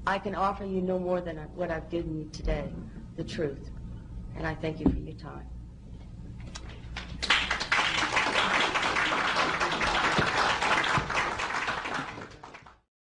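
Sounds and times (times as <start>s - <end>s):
audience applauding: 6.8s - 12.9s.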